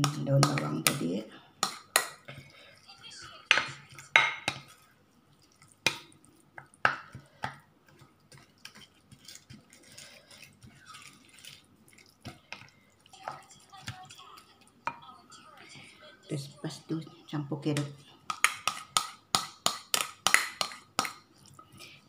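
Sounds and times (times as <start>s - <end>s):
spatula knocking against bowl: 0.0s - 2.2s, 3.5s - 4.7s, 17.7s - 21.2s.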